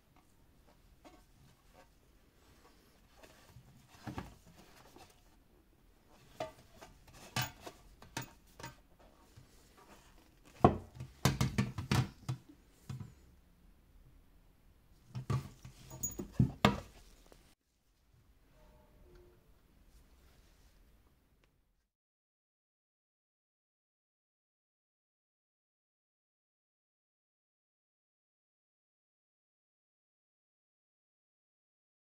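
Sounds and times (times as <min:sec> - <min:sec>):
glass bottle and tin box clattering: 0:15.8 - 0:16.8.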